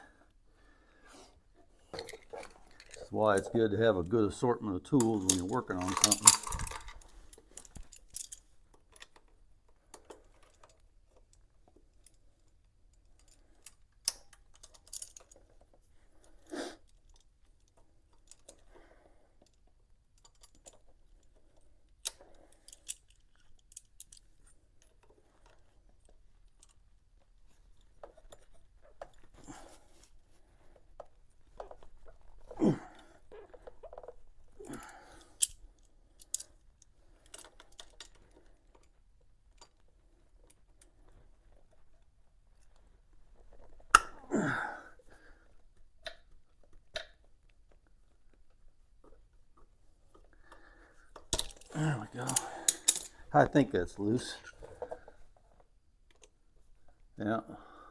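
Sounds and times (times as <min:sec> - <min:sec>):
metal hand tools clinking: 0:04.9 - 0:08.4, 0:51.3 - 0:53.2.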